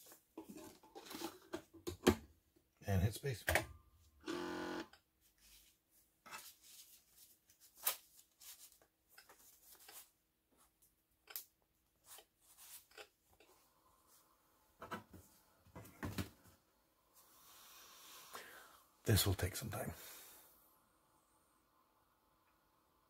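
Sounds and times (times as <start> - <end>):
faint steady hum: 16.5 - 23.0.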